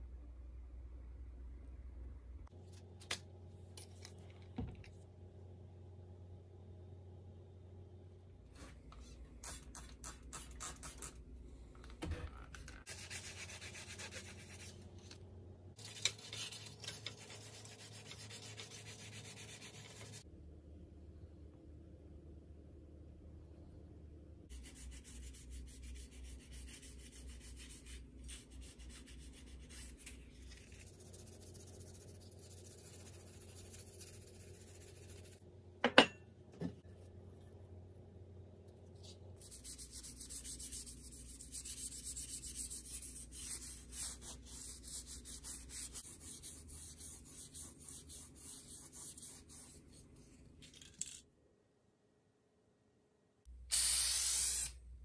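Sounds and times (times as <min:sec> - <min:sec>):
sandpaper rubbing on painted surface: 0:39.4 - 0:49.9.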